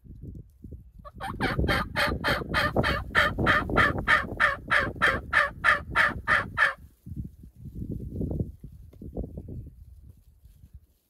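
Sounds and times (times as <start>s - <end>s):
turkey yelping: 1.1s - 6.8s.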